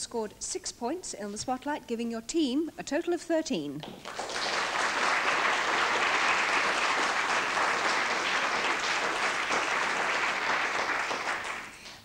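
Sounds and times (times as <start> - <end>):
audience applauding: 3.9 - 12.0.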